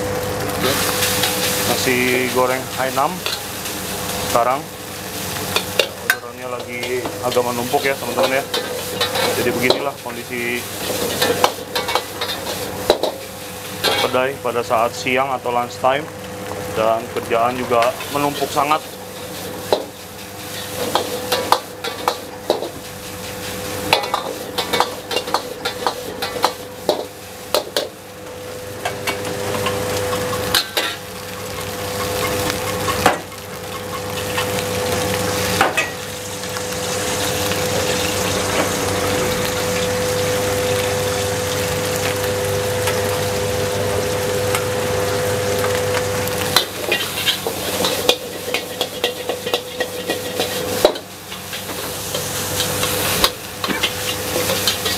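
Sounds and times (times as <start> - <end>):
food sizzling: 0.0 - 54.9
spatula scraping and clanking wok: 5.2 - 14.2, 17.6 - 28.0, 28.8 - 36.1, 46.4 - 54.9.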